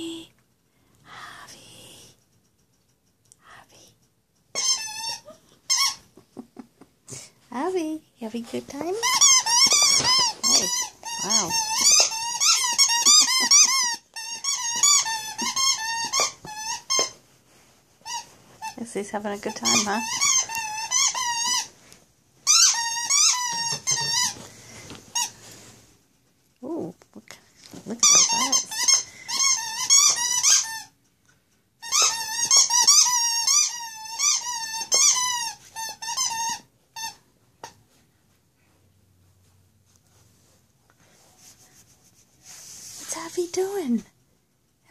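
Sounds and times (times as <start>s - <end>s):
squeaky toy squeaking: 4.5s - 6.1s, 8.8s - 17.2s, 18.0s - 18.8s, 19.5s - 21.7s, 22.4s - 24.4s, 28.0s - 31.0s, 31.8s - 37.2s.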